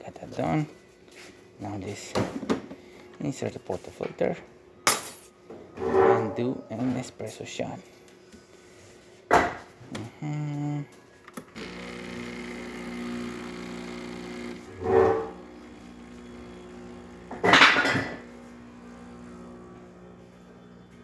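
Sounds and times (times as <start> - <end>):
vibratory water pump humming: 11.6 - 21.0.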